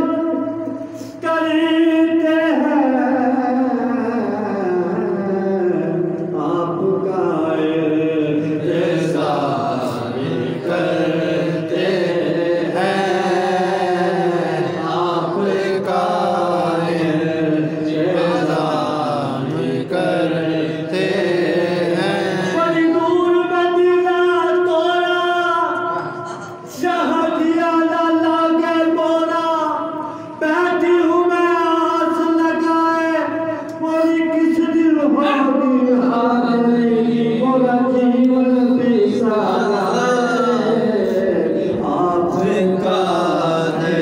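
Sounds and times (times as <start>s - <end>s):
man singing unaccompanied: 30.4s - 44.0s.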